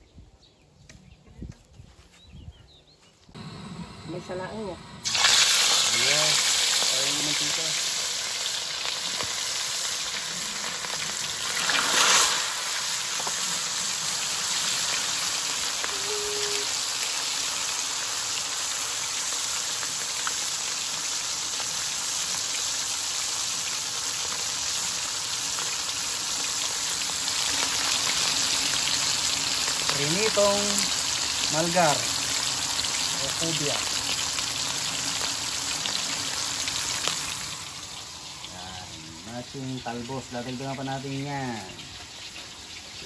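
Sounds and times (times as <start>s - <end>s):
oil crackling and popping: 5.0s - 38.9s
fish sizzling in hot oil: 5.0s - 43.0s.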